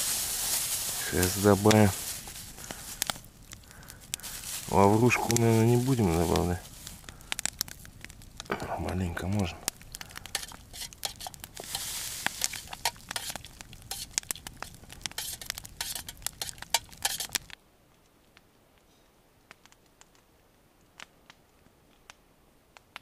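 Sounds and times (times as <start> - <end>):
soft rustle: 0.0 - 8.5, 9.3 - 19.1
sharp clicks and crackles: 1.0 - 18.4.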